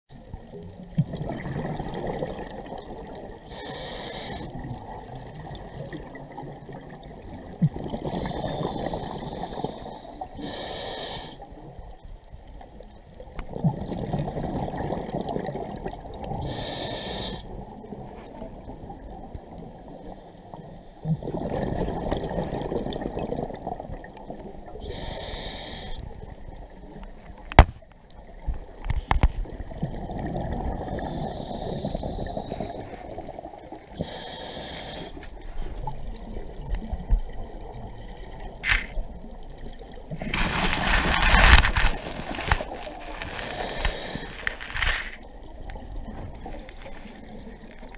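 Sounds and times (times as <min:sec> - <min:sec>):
regulator hissing inhalations: 0:03.5 - 0:04.5, 0:08.4 - 0:11.4, 0:16.5 - 0:17.5, 0:24.8 - 0:26.0, 0:34.0 - 0:35.3.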